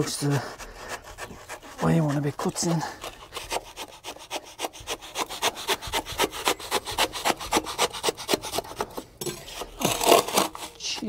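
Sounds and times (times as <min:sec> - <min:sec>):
knife sawing through foam: 0:00.0 - 0:11.0.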